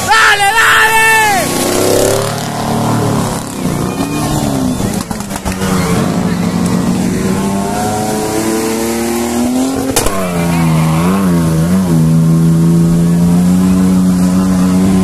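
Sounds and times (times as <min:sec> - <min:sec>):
off-road vehicle engine revving: 0:01.3 - 0:15.0
vehicle ploughing through mud: 0:01.4 - 0:15.0
sharp crack: 0:09.7 - 0:11.4.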